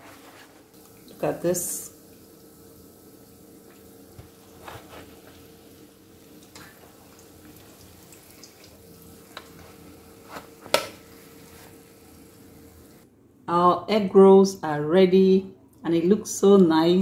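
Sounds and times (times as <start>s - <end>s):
oil sizzling and bubbling: 0.0s - 13.1s
faint steady hum: 0.0s - 17.0s.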